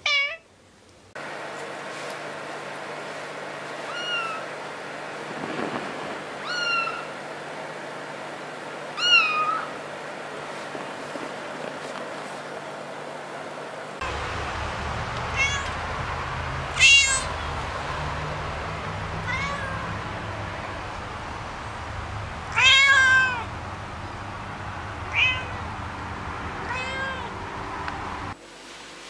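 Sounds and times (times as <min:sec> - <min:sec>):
cat meowing: 0:00.0 - 0:00.4, 0:03.8 - 0:04.5, 0:06.4 - 0:07.1, 0:09.0 - 0:09.7, 0:15.2 - 0:15.9, 0:16.7 - 0:17.6, 0:18.2 - 0:20.2, 0:21.9 - 0:23.5, 0:25.0 - 0:25.6, 0:26.6 - 0:27.4.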